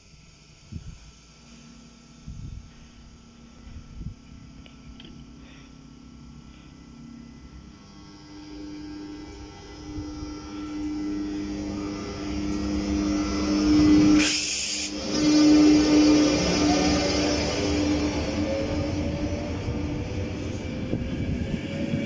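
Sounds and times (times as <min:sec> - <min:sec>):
electric locomotive hum: 0:00.0 - 0:22.0
train coaches rumbling on rails: 0:08.5 - 0:22.0
short hiss: 0:14.2 - 0:15.0.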